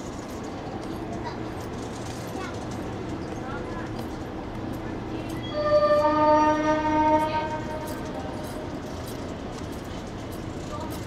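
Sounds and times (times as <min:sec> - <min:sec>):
steady background rumble: 0:00.0 - 0:06.1
train horn blast: 0:05.4 - 0:08.2.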